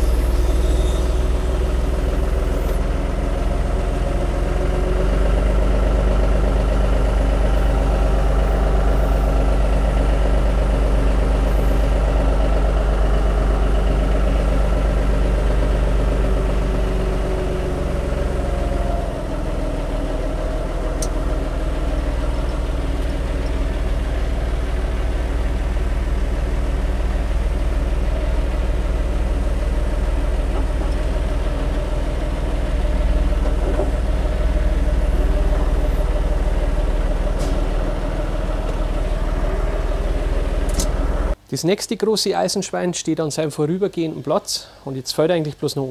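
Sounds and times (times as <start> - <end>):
tractor diesel engine running: 0.0 - 41.5.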